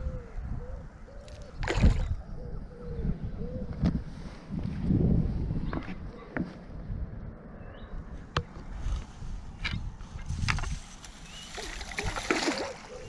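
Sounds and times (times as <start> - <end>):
wind rumble on microphone: 0.0 - 13.0
splashy rustle of landing net: 11.3 - 13.0.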